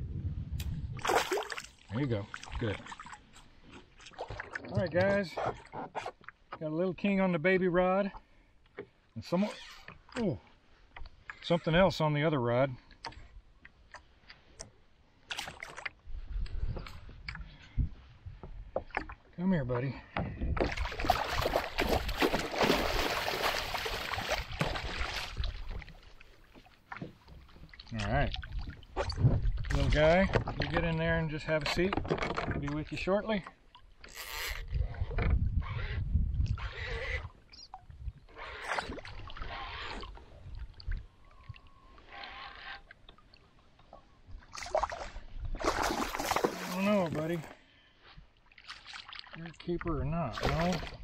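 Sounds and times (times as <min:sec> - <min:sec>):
water sloshing against hull: 0:00.6 - 0:07.2, 0:08.0 - 0:51.0
fish thrashing and splashing water: 0:01.0 - 0:03.2, 0:20.6 - 0:26.1, 0:44.5 - 0:47.5.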